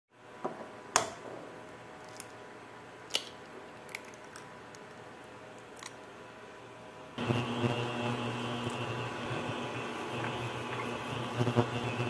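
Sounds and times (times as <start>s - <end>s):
egg shell cracking on bowl: 3.1s - 6.0s.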